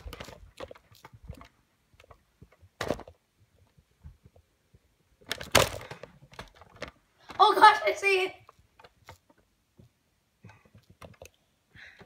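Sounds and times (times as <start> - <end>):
phone handling rustle: 0.0 - 4.5, 5.2 - 7.4
thumps: 0.0 - 7.5.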